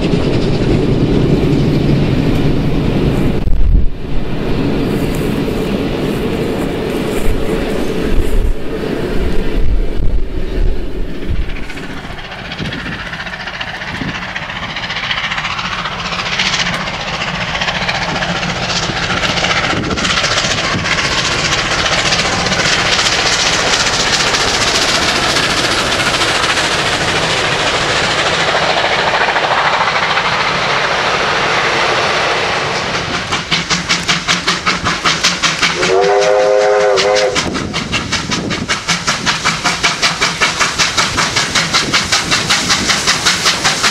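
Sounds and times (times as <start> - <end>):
steam locomotive exhaust: 0.0 - 43.9
train wheels on rails: 0.0 - 43.9
chord-like steam whistle: 35.8 - 37.5.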